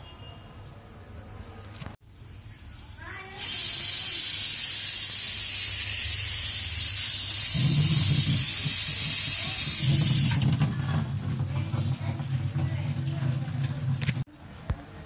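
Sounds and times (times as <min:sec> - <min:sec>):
tap water running into sink: 0:07.5 - 0:14.3.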